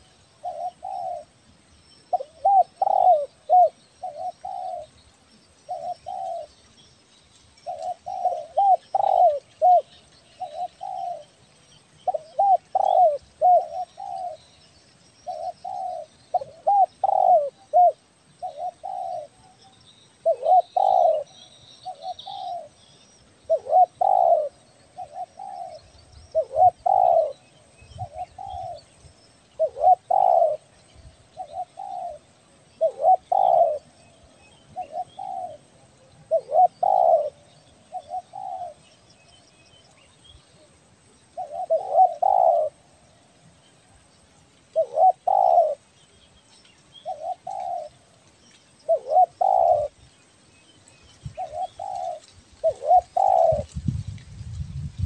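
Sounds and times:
dove cooing: 0.0s - 1.4s, 2.1s - 5.0s, 5.7s - 6.5s, 7.6s - 11.4s, 12.0s - 14.5s, 15.2s - 19.6s, 20.2s - 22.8s, 23.5s - 29.0s, 29.6s - 30.8s, 31.4s - 38.8s, 41.3s - 42.9s, 44.7s - 45.8s, 47.0s - 48.1s, 48.8s - 50.0s, 51.3s - 53.8s.

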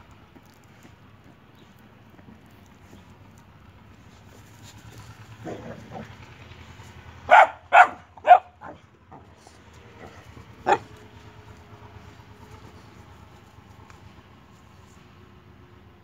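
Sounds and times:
dog barking: 7.3s - 9.2s, 10.0s - 10.9s.

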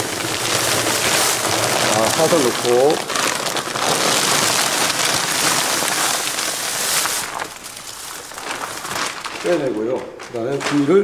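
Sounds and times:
granules pouring into plastic barrel: 0.0s - 10.9s.

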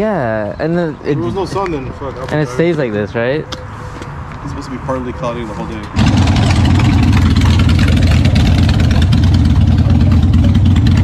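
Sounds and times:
motorcycle engine running: 6.0s - 11.0s.

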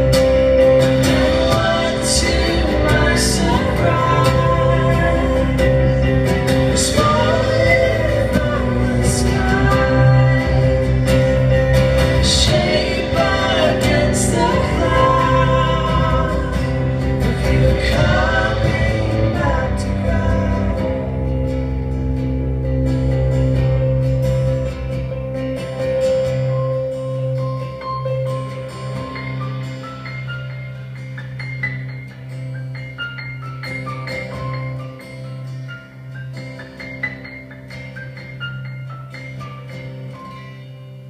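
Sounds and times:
acoustic guitar: 0.0s - 41.0s
keyboard: 0.0s - 41.0s
woman singing: 1.2s - 21.1s.

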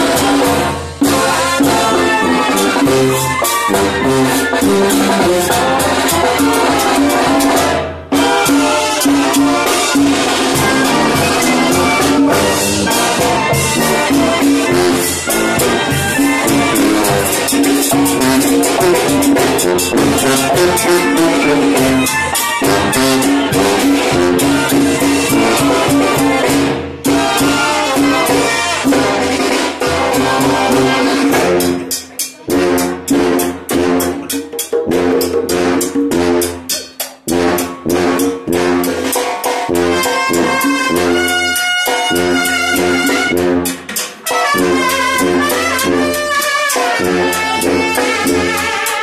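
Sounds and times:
sousaphone bass: 0.0s - 39.1s
bass drum: 0.0s - 46.4s
conga: 0.0s - 49.0s
drum kit: 0.0s - 49.0s
trumpets and trombones: 0.0s - 49.0s.

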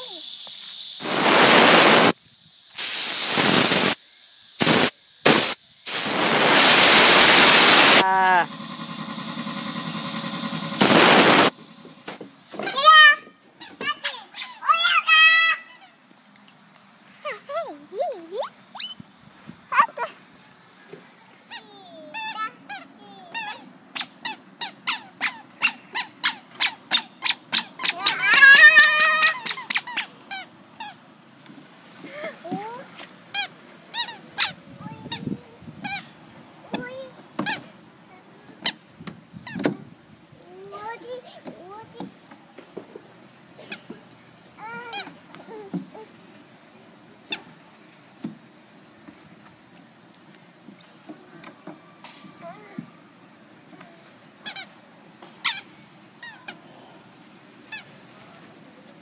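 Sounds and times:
water spraying from hose nozzle: 0.0s - 12.2s
squeaky shoes chirping: 18.4s - 19.0s.

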